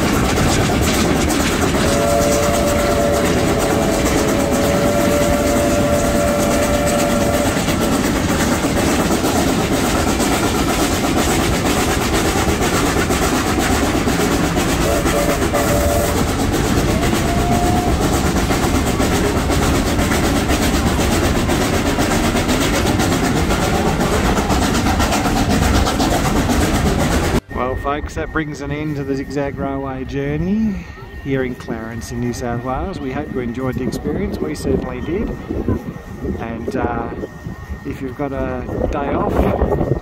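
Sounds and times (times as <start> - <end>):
train wheels rumbling on rails: 0.0 - 40.0.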